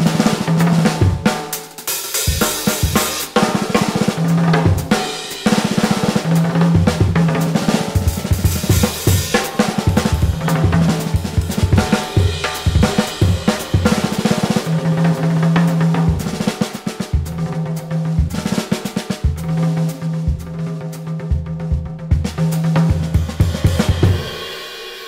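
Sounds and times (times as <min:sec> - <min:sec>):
drum kit played with sticks: 0:00.0 - 0:25.0
low tom ringing: 0:08.0 - 0:15.8.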